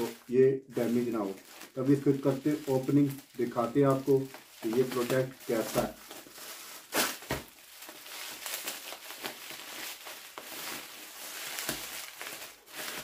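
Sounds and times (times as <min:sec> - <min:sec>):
bubble wrap crinkling and rustling: 0:00.0 - 0:13.0
sharp crackles: 0:00.0 - 0:13.0.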